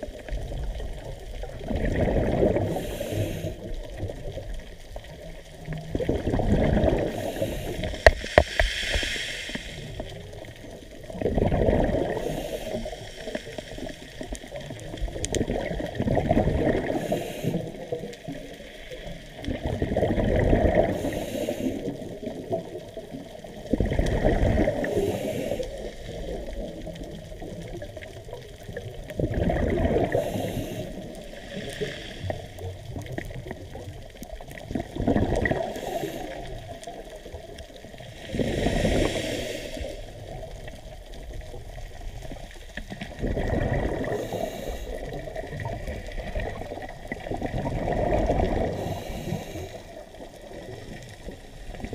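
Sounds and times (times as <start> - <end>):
exhaled bubbles underwater: 0.0 - 51.9
underwater hiss: 1.8 - 4.4, 5.6 - 22.8, 23.4 - 28.0, 29.3 - 33.8, 35.2 - 51.9.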